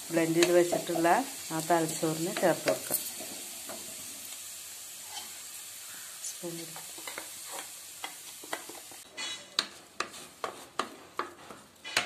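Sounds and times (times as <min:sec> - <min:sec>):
shallots sizzling in oil: 0:00.0 - 0:12.0
wooden spatula knocking on pan: 0:09.6 - 0:12.0.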